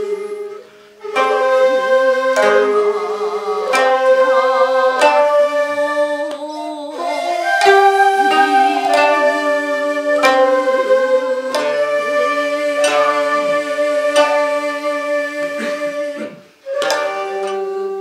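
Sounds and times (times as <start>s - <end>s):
person singing held line: 0.0s - 18.0s
shamisen plucked strokes: 0.0s - 18.0s.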